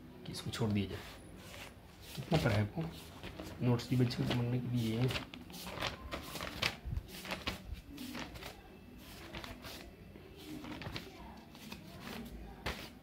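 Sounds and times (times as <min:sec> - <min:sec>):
faint rustling and tapping: 0:00.6 - 0:13.0.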